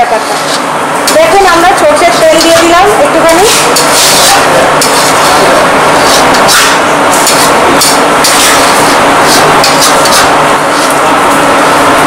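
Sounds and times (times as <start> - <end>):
loud kitchen roar: 0.0 - 12.0
metal spatula scraping a pan: 2.0 - 11.0.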